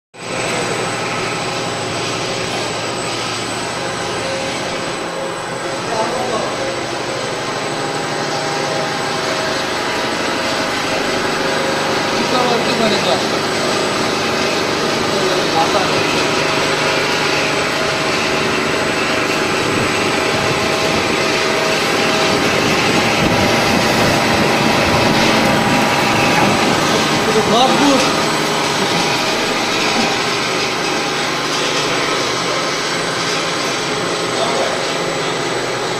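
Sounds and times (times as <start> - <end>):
extruder machine running: 0.2 - 35.9
high machine whine: 0.2 - 35.9.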